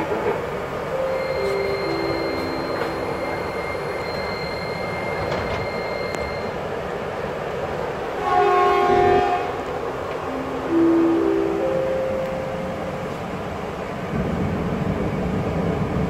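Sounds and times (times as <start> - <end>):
electric train rumble: 0.0 - 16.0
train horn: 0.9 - 6.5, 8.1 - 12.8.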